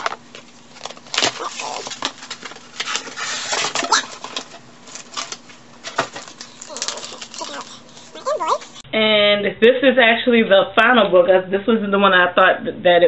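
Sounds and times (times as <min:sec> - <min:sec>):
paper and plastic packaging rustling: 0:00.0 - 0:08.8.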